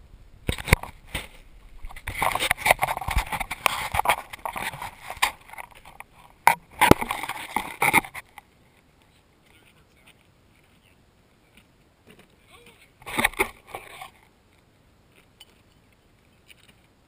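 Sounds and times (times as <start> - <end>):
fingers rubbing on camera: 1.8 - 8.3.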